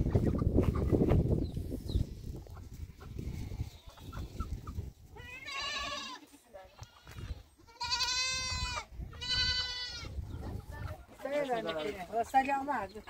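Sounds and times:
goat bleating: 0:05.1 - 0:10.2.

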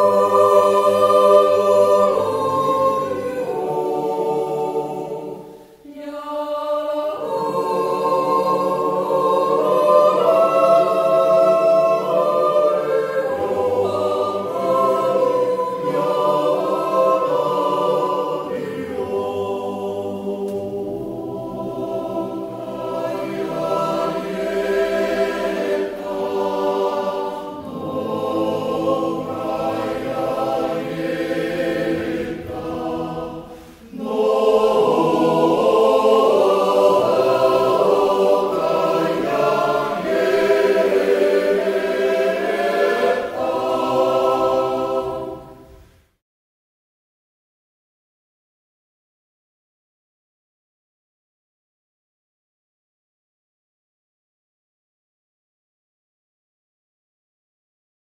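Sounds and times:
mixed choir singing a cappella: 0:00.0 - 0:46.0.

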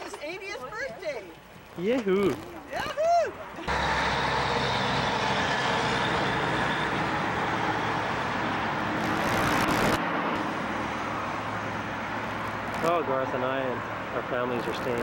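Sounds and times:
highway traffic noise: 0:03.4 - 0:15.0
truck passing: 0:03.7 - 0:15.0.

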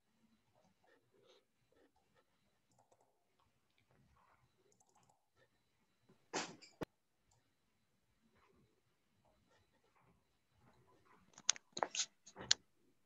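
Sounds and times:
mouse and keyboard clicks: 0:11.2 - 0:12.6.

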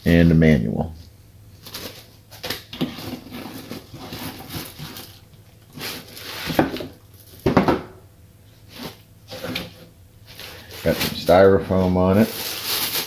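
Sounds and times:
foam scraping inside cardboard box: 0:02.8 - 0:05.1.

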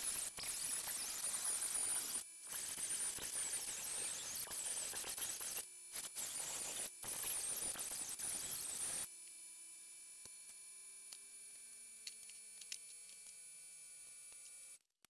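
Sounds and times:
die grinder cutting sheet steel: 0:00.0 - 0:09.1.

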